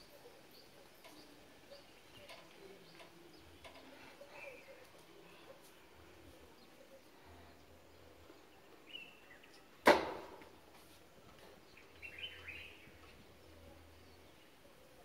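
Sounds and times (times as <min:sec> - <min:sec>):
sharp crack: 0:09.8 - 0:10.5
faint bird chirps: 0:11.7 - 0:15.0.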